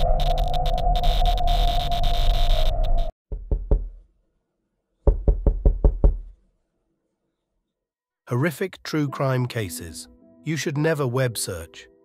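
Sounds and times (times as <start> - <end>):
electronic hum with crackles: 0.0 - 3.1.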